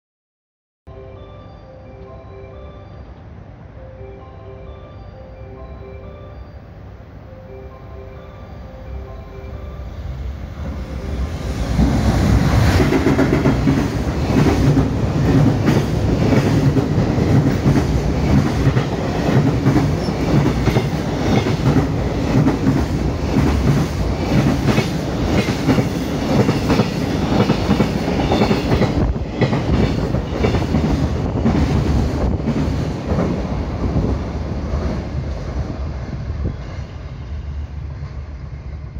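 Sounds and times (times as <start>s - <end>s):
train rumble: 6.9s - 38.9s.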